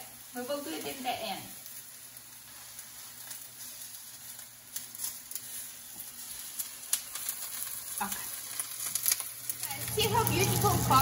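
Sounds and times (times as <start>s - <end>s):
eggplant sizzling in oil: 0.0s - 11.0s
oil popping and crackling: 0.0s - 11.0s.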